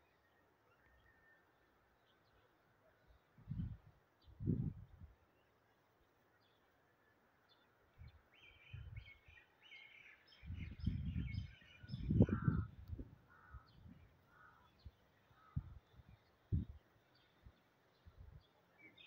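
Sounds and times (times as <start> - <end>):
birds chirping and calling: 8.4 - 16.3.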